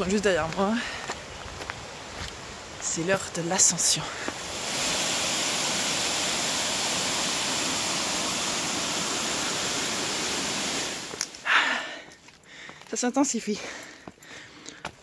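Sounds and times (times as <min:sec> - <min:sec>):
waterfall roaring: 0:02.8 - 0:11.7.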